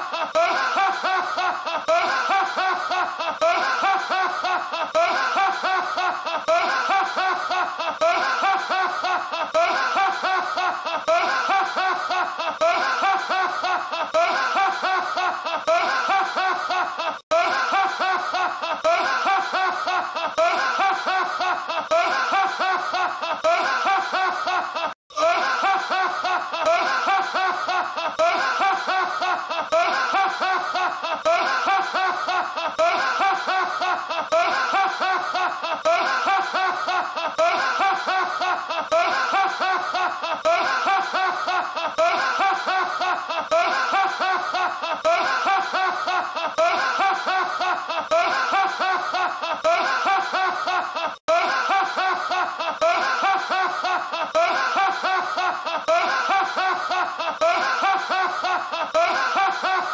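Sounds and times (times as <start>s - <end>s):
man laughing loudly: 0.0s - 59.9s.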